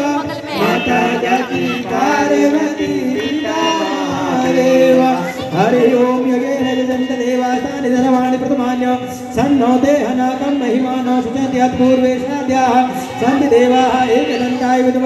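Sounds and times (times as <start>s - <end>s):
group singing devotional song: 0.0s - 8.2s.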